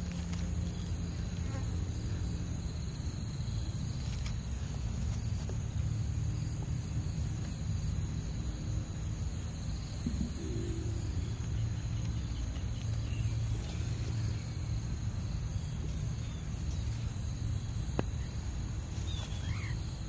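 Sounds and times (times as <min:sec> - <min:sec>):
high insect chirring: 0:00.1 - 0:20.0
low rumble: 0:09.7 - 0:16.2.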